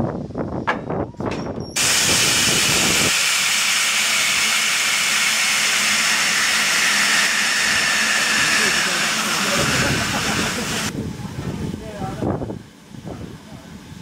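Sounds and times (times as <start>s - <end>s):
metal knocks and clanks: 0.6s - 1.8s
steam hissing: 1.8s - 10.9s.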